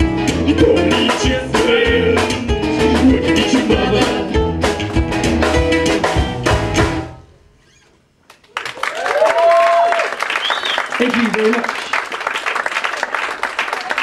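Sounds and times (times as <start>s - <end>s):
folk band playing: 0.0s - 7.2s.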